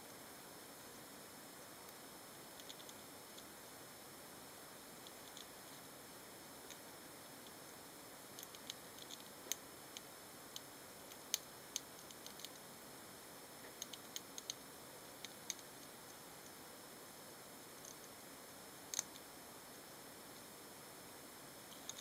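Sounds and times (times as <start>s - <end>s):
faint steady hiss: 0.0s - 22.0s
hamsters cracking seeds: 2.5s - 3.5s, 8.3s - 12.7s, 13.6s - 16.5s, 18.9s - 19.3s, 21.7s - 22.0s.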